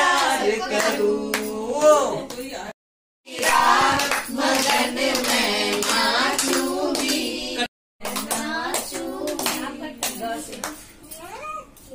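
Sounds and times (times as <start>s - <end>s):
people singing together: 0.0s - 2.1s, 3.3s - 10.8s
hand clapping: 3.4s - 7.3s, 8.0s - 10.8s.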